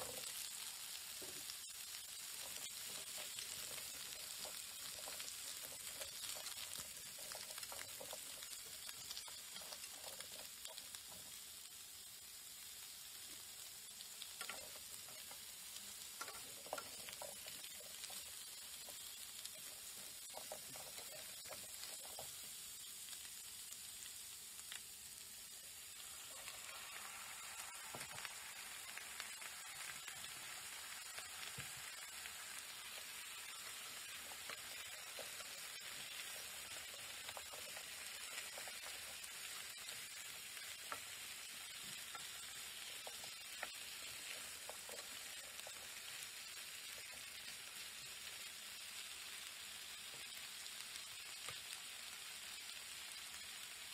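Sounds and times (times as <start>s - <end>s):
food sizzling in a frying pan: 0.0s - 53.9s
wooden spatula scraping a pan: 2.3s - 10.9s, 14.4s - 22.4s, 33.6s - 46.2s.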